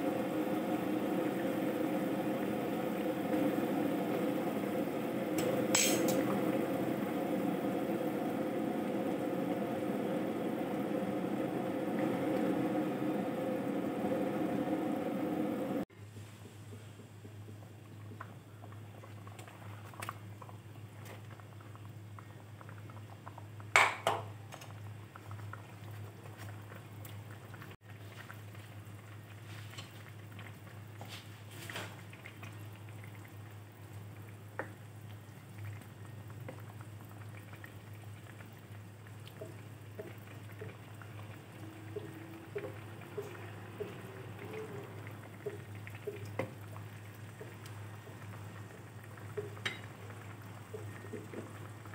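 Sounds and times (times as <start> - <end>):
broth bubbling: 0.0 - 15.9, 32.0 - 51.9
steady low hum: 0.0 - 19.2.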